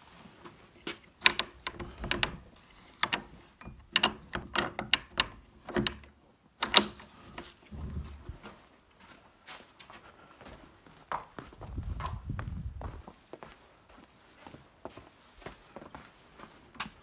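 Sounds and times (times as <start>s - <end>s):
horse hooves on stable floor: 6.8s - 17.0s.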